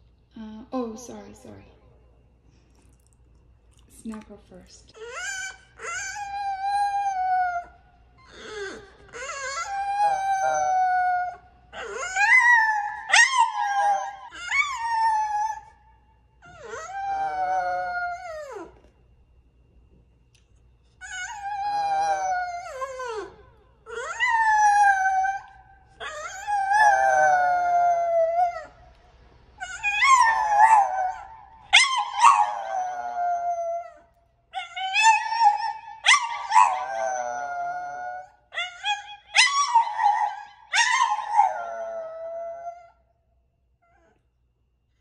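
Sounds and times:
dog howling: 5.0 - 15.8, 16.4 - 18.9, 21.0 - 28.8, 29.6 - 43.0.

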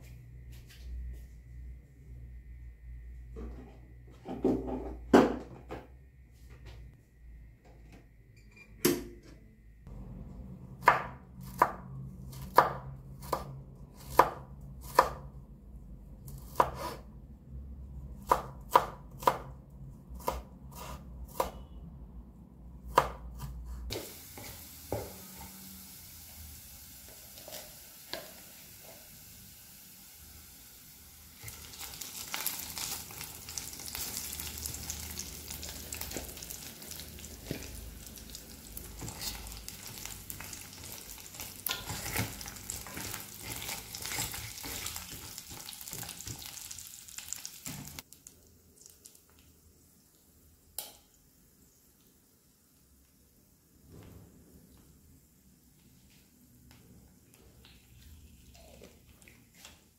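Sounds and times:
food sizzling: 23.9 - 50.4.

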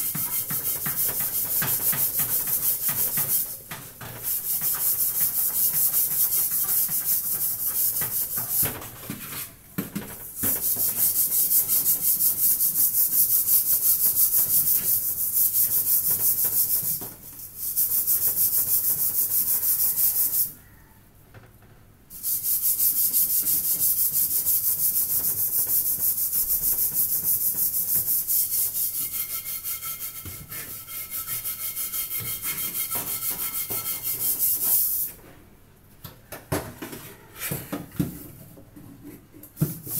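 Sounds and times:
scrubbing metal pot: 27.6 - 34.7.

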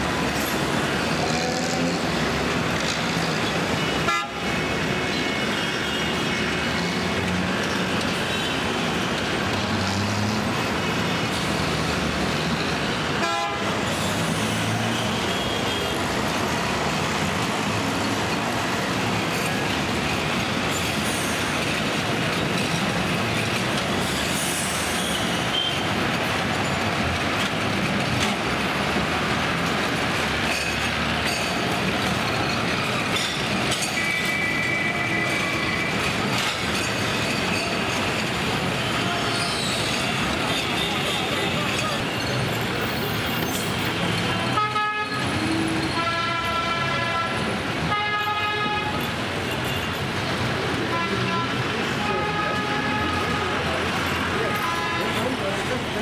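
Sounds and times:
traffic engines and road noise: 0.0 - 56.0
vehicle horns tooting: 3.8 - 4.6, 13.0 - 13.9, 38.8 - 42.0, 44.3 - 49.0, 50.8 - 55.3.

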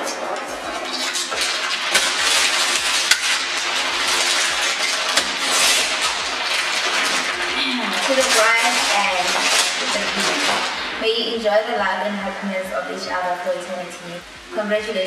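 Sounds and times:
tissue paper rustling: 0.8 - 11.0.

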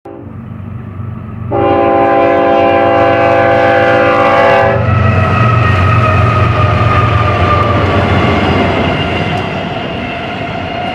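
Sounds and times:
locomotive engines rumbling: 0.1 - 10.9
locomotive air horn blast: 1.5 - 4.9.

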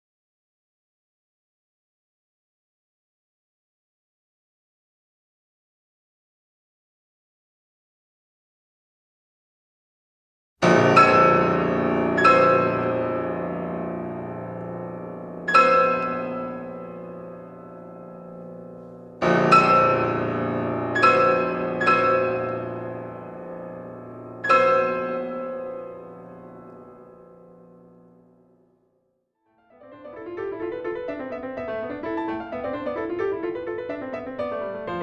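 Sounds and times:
solo piano chords: 10.6 - 28.6, 29.7 - 35.0.

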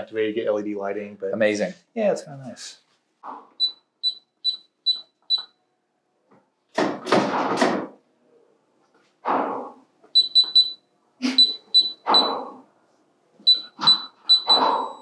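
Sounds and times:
keypad lock beeping: 3.6 - 5.6, 10.2 - 10.8, 11.4 - 12.5, 13.5 - 15.0.

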